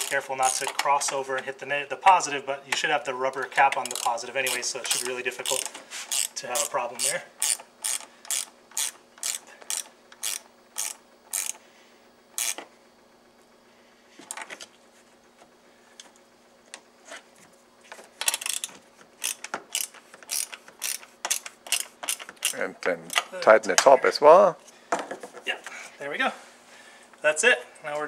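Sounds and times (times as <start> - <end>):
socket ratchet clicking: 3.7 - 11.6, 12.4 - 12.6, 18.2 - 23.3.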